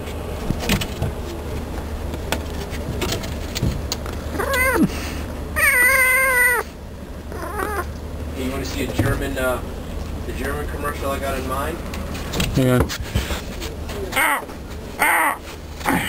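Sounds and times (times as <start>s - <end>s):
cat meowing: 4.4s - 4.9s, 5.6s - 6.7s, 7.3s - 7.9s.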